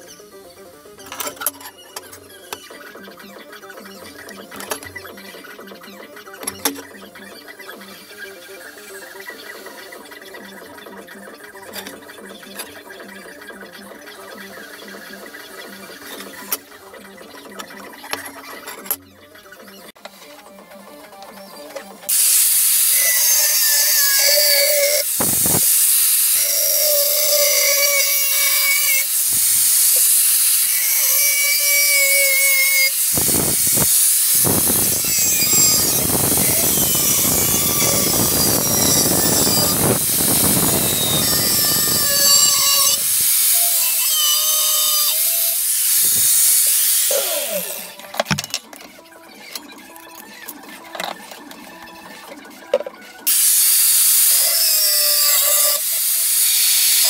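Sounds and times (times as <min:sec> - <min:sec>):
angle grinder grinding steel: 0:22.1 - 0:48.2, 0:53.3 - 0:57.0.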